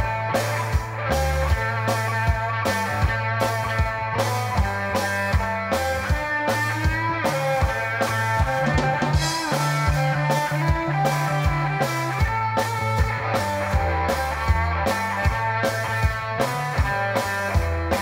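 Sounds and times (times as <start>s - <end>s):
bass drum beat: 0.0s - 18.0s
electric guitars: 0.0s - 18.0s
rock band playing: 0.0s - 18.0s.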